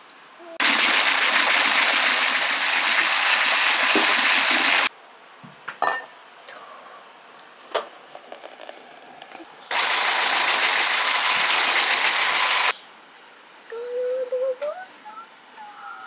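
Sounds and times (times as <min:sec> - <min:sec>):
pouring into a glass bowl: 0:08.1 - 0:11.2
whisking in a steel bowl: 0:09.7 - 0:12.7.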